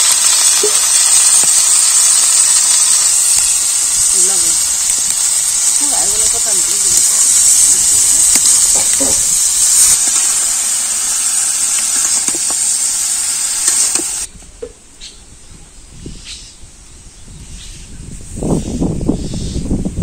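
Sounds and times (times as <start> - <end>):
vegetables sizzling in hot oil: 0.0 - 14.3.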